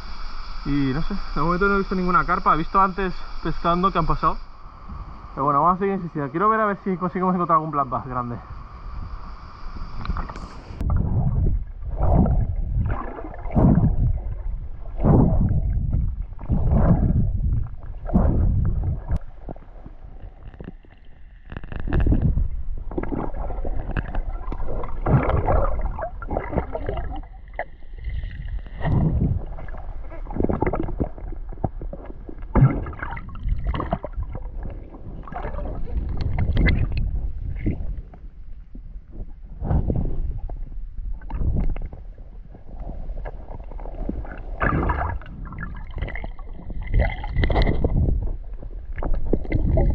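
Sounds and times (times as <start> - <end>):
water sloshing and gurgling: 0.1 - 49.9
sharp water splashes: 22.9 - 28.1, 44.6 - 48.0.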